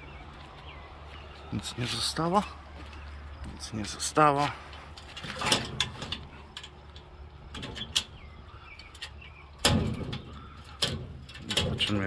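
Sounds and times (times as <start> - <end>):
metal crate doors clicking: 4.9 - 12.0.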